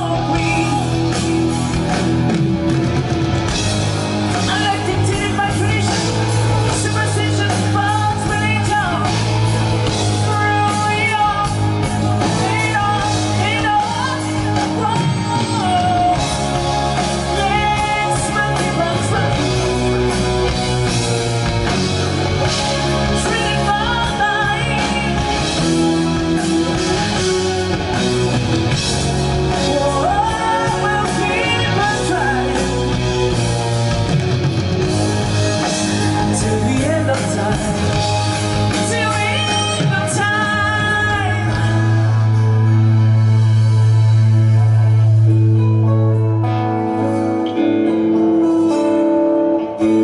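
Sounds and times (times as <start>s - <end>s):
man singing into a microphone: 0.0s - 1.6s, 4.4s - 19.8s, 23.2s - 25.4s, 29.5s - 33.2s, 36.2s - 42.8s
bass guitar: 0.0s - 50.0s
drums: 0.0s - 50.0s
electric and acoustic guitars: 0.0s - 50.0s.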